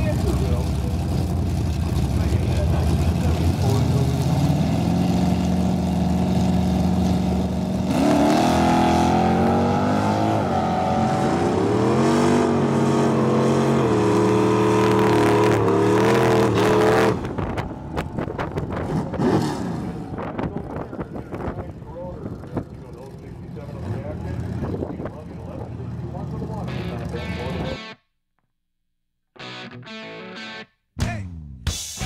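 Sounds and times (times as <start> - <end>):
car engine accelerating hard: 0.0 - 27.8
wind noise: 17.0 - 22.8.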